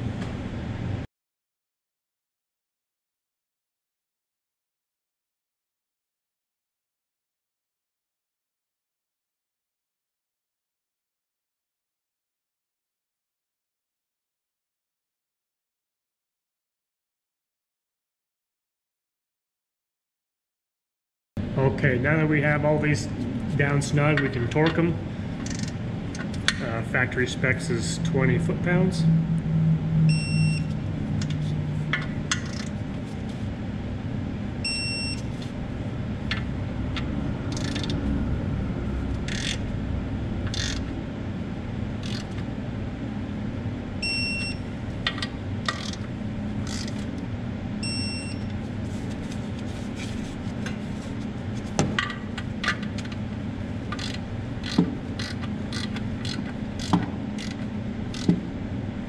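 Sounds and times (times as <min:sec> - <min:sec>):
steady low hum: 0:00.0 - 0:01.1, 0:21.4 - 0:59.0
wrench ratchet clicks: 0:25.4 - 0:25.7, 0:37.5 - 0:37.9, 0:39.3 - 0:39.6, 0:40.5 - 0:40.8, 0:42.0 - 0:42.3, 0:46.6 - 0:46.9, 0:54.0 - 0:58.3
short high beeps: 0:30.0 - 0:30.7.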